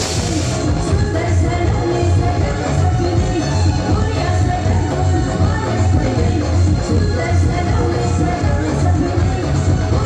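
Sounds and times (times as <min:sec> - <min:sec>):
live band music: 0:00.0 - 0:01.4
heavy bass line: 0:00.0 - 0:02.0.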